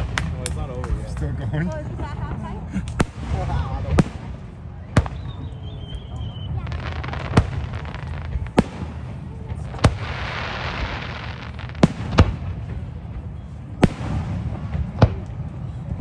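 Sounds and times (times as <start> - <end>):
fireworks bursting with sharp bangs: 0.0 - 1.8, 2.8 - 16.0
fireworks hiss: 9.6 - 12.6.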